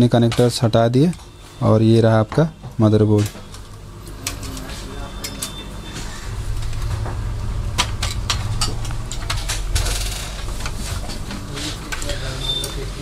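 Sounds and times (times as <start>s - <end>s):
low steady rumble: 5.8s - 12.1s.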